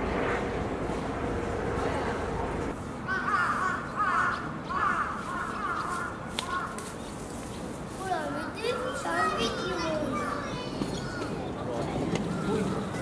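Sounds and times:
crow cawing: 3.1 - 6.8.

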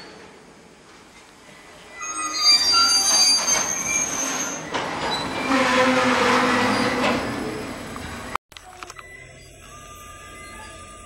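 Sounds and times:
train wheels squealing on rails: 0.0 - 0.7, 1.4 - 8.3, 9.1 - 11.0.

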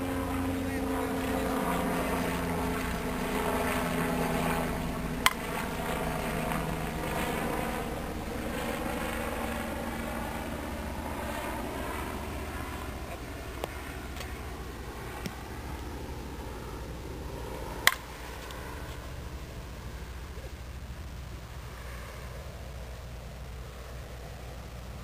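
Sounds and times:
engine drone: 0.0 - 25.0
bat hitting ball: 17.8 - 18.1.

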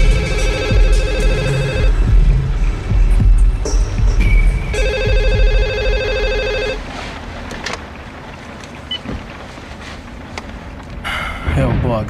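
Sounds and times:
cordless phone ringing: 0.0 - 2.0, 4.8 - 6.8.

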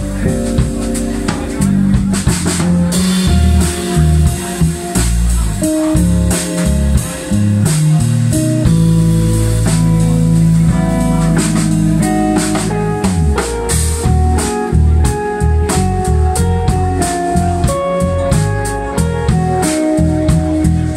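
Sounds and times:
bass guitar: 0.0 - 20.9
drum kit: 0.0 - 20.9
electric guitar: 0.0 - 20.9
keyboard: 0.0 - 20.9.

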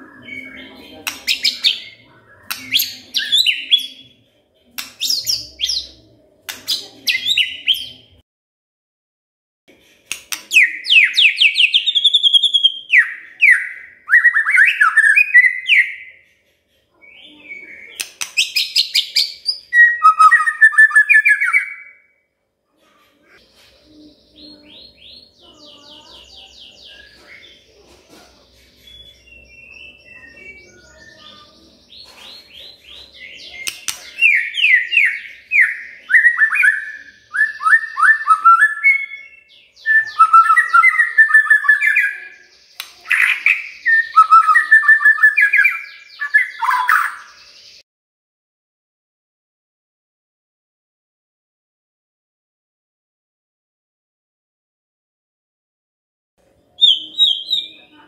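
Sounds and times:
bird singing whistled phrases: 10.5 - 16.2, 17.0 - 22.1, 33.2 - 47.5, 56.8 - 57.8.

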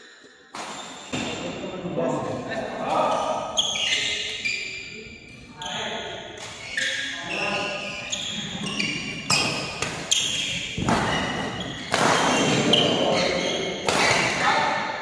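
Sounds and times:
racket hitting shuttlecock: 0.5 - 1.4, 9.1 - 14.4.

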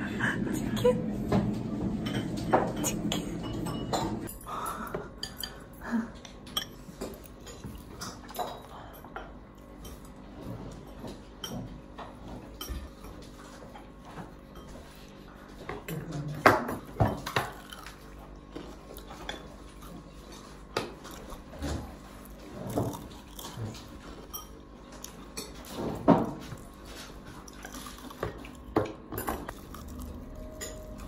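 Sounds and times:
utensils clinking on plates: 0.5 - 31.0.

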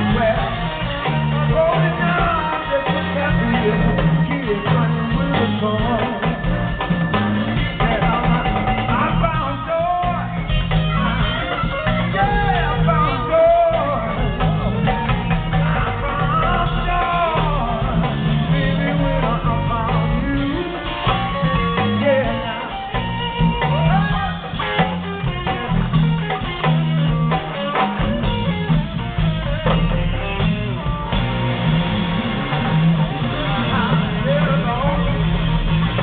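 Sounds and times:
person singing: 0.0 - 27.8
bass line: 0.0 - 36.0
congas: 0.0 - 36.0
drum kit: 0.0 - 36.0
electric guitar: 0.0 - 36.0
keyboard: 0.0 - 36.0.

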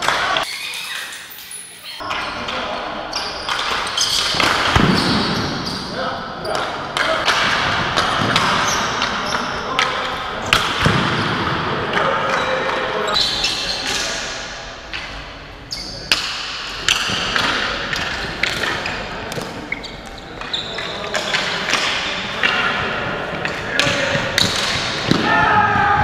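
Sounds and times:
hockey sticks and ball clacking: 2.0 - 5.6, 6.4 - 14.3, 16.0 - 26.0
players shouting: 25.0 - 26.0.

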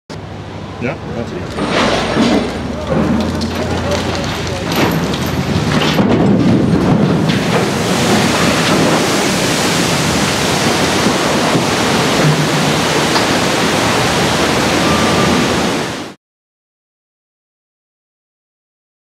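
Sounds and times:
water surging and churning: 0.4 - 16.2
wave washing over bank: 1.2 - 16.2.

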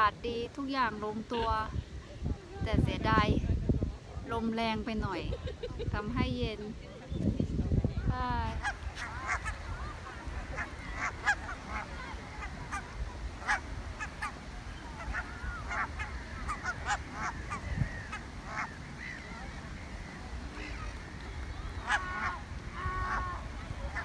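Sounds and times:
wind rumble on microphone: 0.0 - 24.0
geese honking: 8.5 - 24.0.

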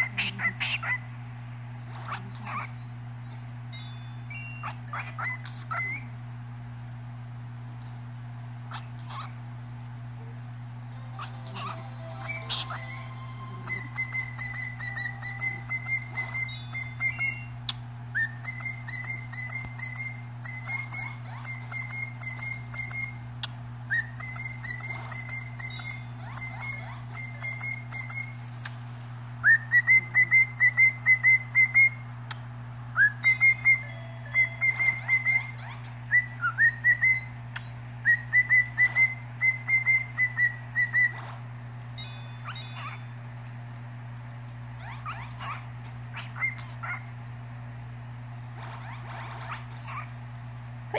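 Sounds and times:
steady low hum: 0.0 - 50.9
cockatiel whistling: 4.3 - 6.1, 11.2 - 23.2, 23.9 - 28.4, 29.4 - 32.0, 33.0 - 37.4, 38.0 - 41.2, 46.2 - 47.0.

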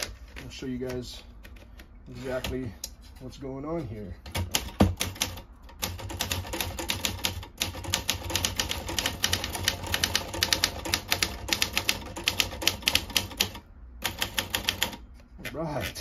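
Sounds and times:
manual typewriter typing: 4.3 - 15.0.

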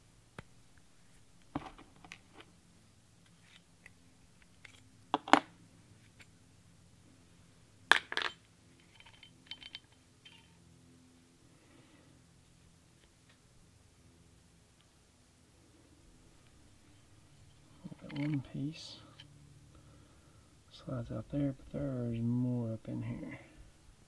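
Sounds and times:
metal parts clicking and clinking: 7.9 - 10.6, 17.4 - 19.3.

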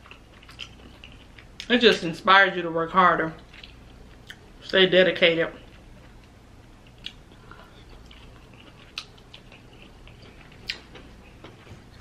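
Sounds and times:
person chewing: 0.0 - 1.7, 3.4 - 4.5, 5.7 - 12.0.

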